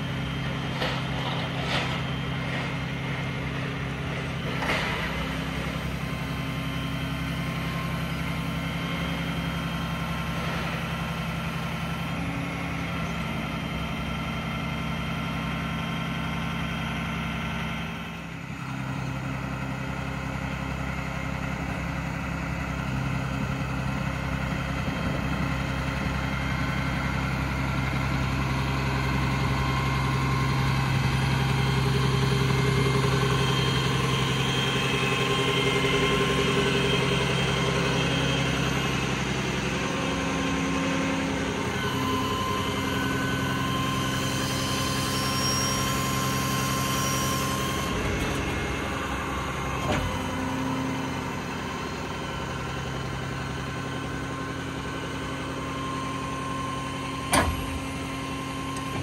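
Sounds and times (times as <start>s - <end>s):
diesel engine running: 0.0s - 59.0s
hydraulic crane tone: 25.3s - 59.0s.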